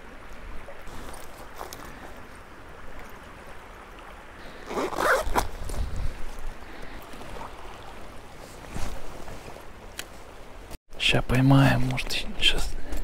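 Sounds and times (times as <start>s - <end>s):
zipper drawn: 4.6s - 5.6s.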